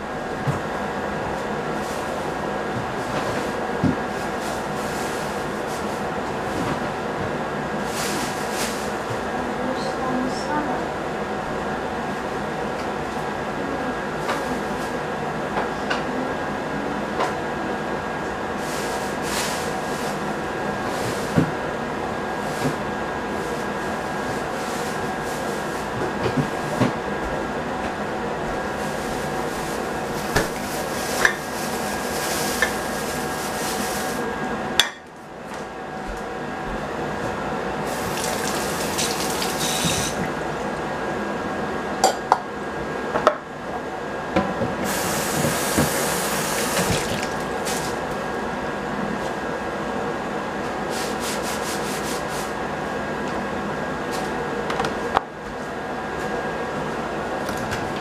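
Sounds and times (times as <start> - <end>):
mechanical hum with whine: 0.0 - 58.0
cutting board rubbed clean: 28.8 - 34.2, 50.9 - 52.5
tap water running: 37.9 - 40.4, 44.8 - 48.0.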